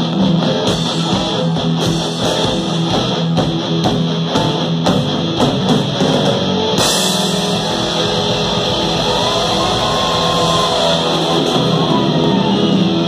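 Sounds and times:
bass guitar: 0.0s - 13.0s
drum kit beat: 0.0s - 13.0s
electric guitars: 0.0s - 13.0s
cymbals crashing: 6.8s - 11.9s.

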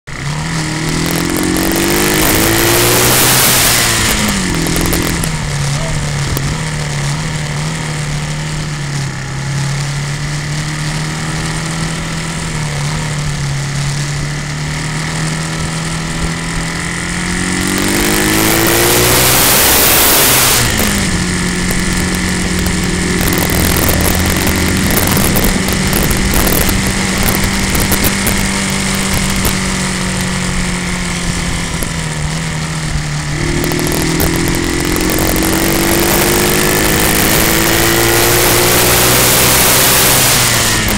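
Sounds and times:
motorcycle engine under load: 0.0s - 40.9s
loud rushing noise: 16.9s - 40.9s.

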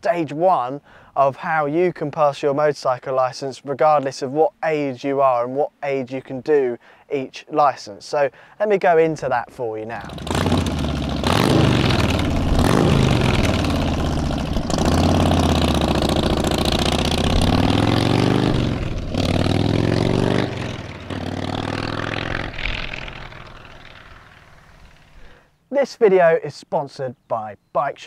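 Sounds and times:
motorcycle engine accelerating: 10.0s - 25.3s.

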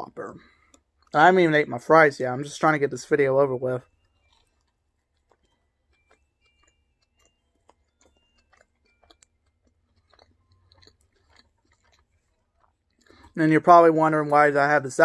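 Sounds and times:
chewing mouth clicks and smacks: 3.8s - 13.4s.

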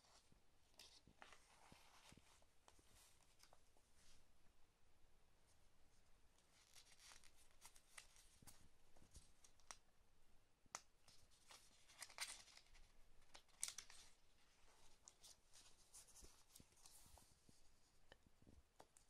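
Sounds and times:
paper and packaging rustling: 6.5s - 9.8s, 11.2s - 17.3s.

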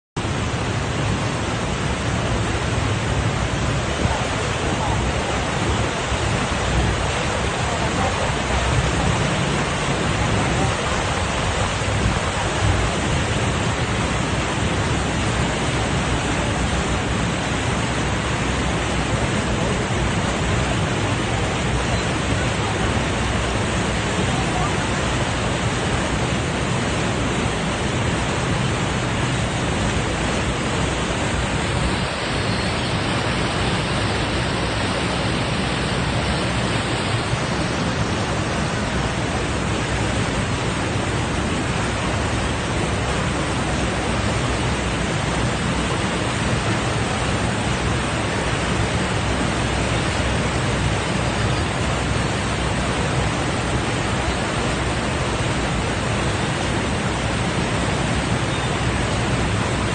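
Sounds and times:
boat wake churning: 0.2s - 59.9s
waterfall rushing: 0.2s - 59.9s.

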